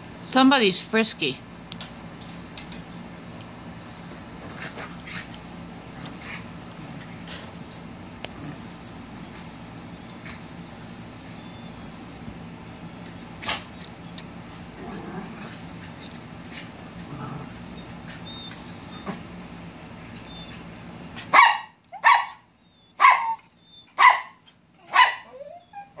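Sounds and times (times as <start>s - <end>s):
small dog barking: 21.3s - 23.4s, 24.0s - 25.3s.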